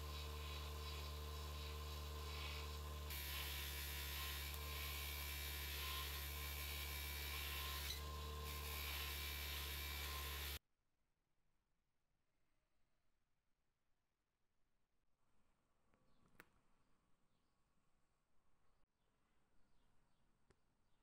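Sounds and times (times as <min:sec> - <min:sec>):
bench polisher motor running: 0:00.0 - 0:10.6
spring rubbing on buffing wheel: 0:00.0 - 0:10.6.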